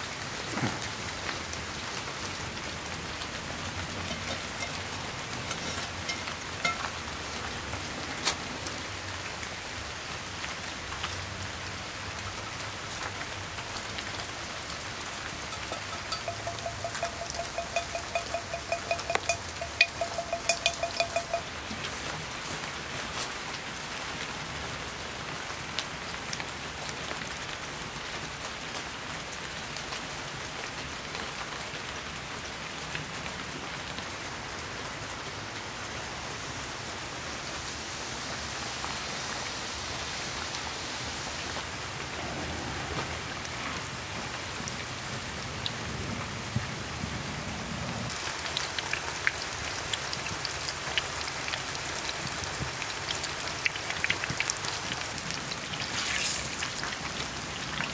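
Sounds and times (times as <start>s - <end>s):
oil sizzling and crackling: 0.0s - 11.0s, 12.0s - 23.4s, 48.1s - 57.9s
rain pattering: 0.0s - 57.9s.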